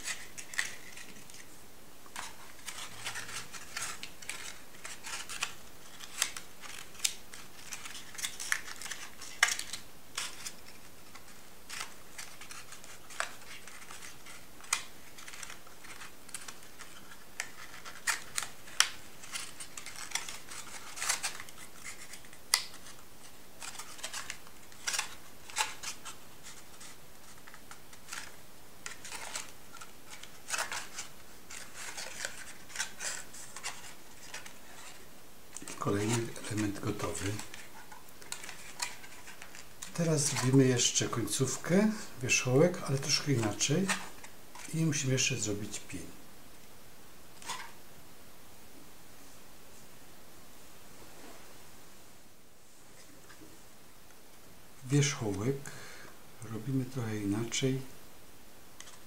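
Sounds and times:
stiff paper crinkling: 0:00.0 - 0:45.8.

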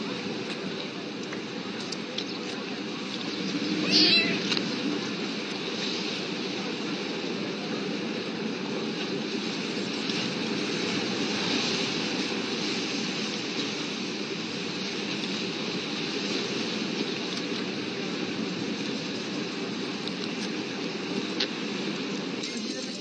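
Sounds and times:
harbour ambience rushing noise: 0:00.0 - 0:23.0.

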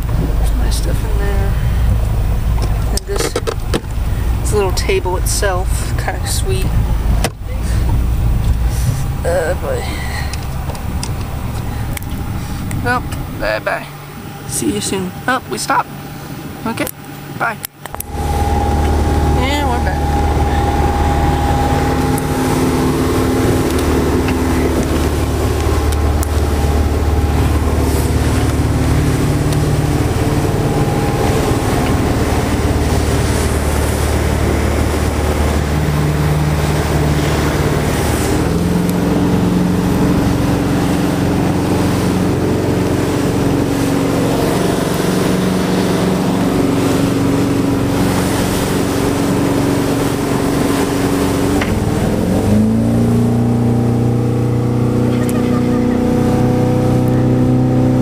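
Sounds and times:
boat engine running: 0:00.0 - 0:58.0
water noise: 0:00.0 - 0:58.0
wind: 0:00.0 - 0:58.0.

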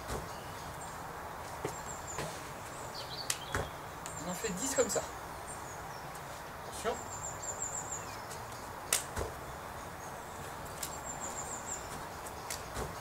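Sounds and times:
outdoor background hiss: 0:00.0 - 0:13.0
high chirping trills: 0:00.2 - 0:13.0
sneakers landing on grass: 0:09.0 - 0:09.4.

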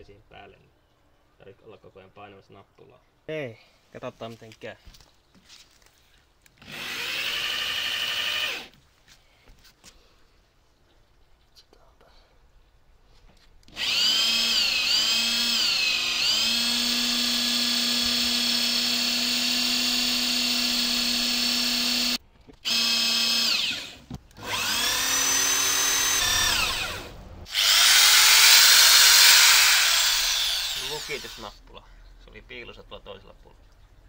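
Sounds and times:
electric drill motor whine: 0:06.6 - 0:08.8, 0:13.7 - 0:31.6.

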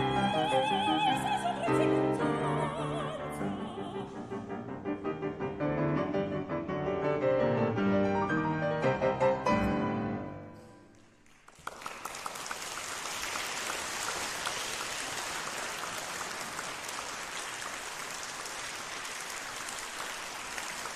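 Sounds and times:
piano chords: 0:00.0 - 0:10.9
audience applause: 0:10.9 - 0:20.9.

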